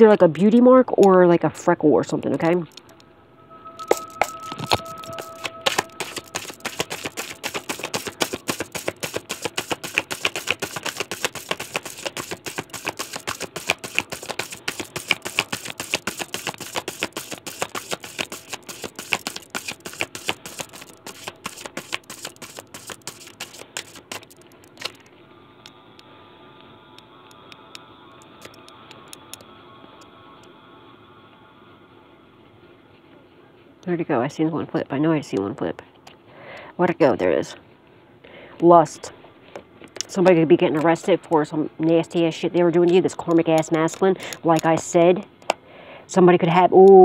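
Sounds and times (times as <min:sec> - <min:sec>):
cards being shuffled: 0:03.9 - 0:25.1.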